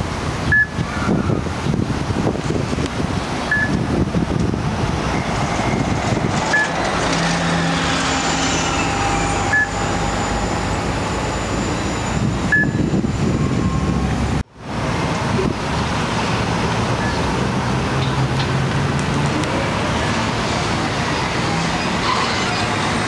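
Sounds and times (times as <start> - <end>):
bus drivetrain whine: 0.0 - 23.0
bus engine rumble: 0.0 - 23.0
short high beep: 3.5 - 3.8, 8.6 - 14.1.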